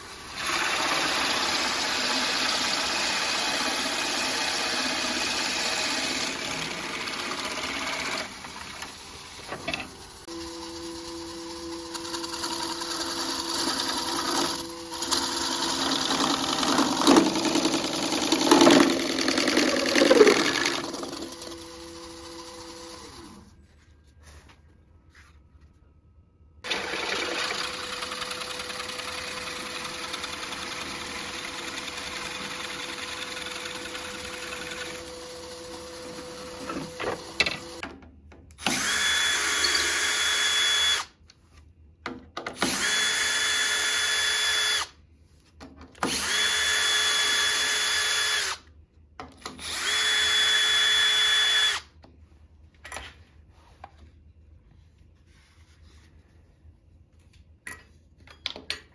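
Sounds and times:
cordless drill spinning: 0.1s - 9.4s, 10.3s - 23.5s, 26.6s - 37.8s, 38.6s - 41.2s, 42.6s - 44.9s, 46.0s - 48.7s, 49.6s - 51.9s.

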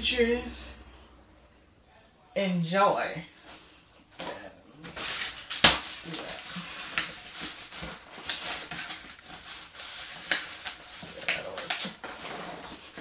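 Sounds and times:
paper flyers rustling and crackling: 4.8s - 13.0s.

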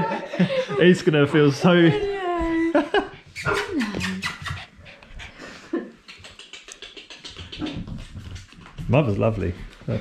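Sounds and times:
dog panting: 3.1s - 10.0s.

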